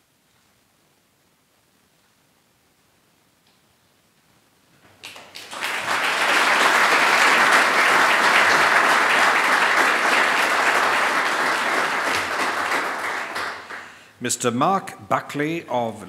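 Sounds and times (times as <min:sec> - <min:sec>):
audience applause: 0:05.0 - 0:14.0.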